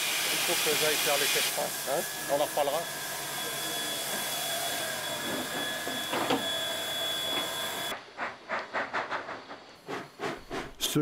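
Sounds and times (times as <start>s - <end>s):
steam hiss with high tone: 0.0s - 7.9s
steam locomotive exhaust beats: 0.0s - 11.0s.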